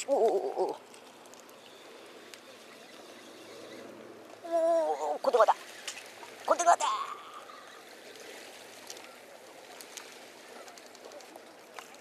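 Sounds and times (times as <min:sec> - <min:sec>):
sea water washing against rocks: 0:04.9 - 0:12.0.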